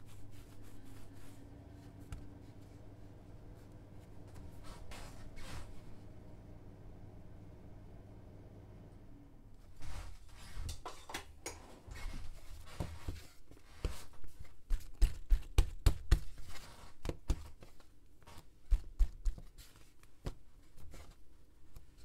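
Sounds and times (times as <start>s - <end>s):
hands patting dough on board: 12.7s - 21.9s.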